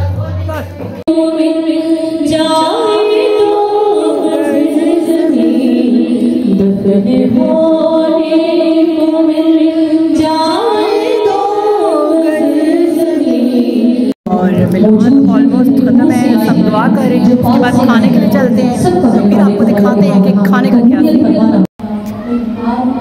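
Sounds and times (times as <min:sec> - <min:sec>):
woman singing: 0:01.1 - 0:14.2.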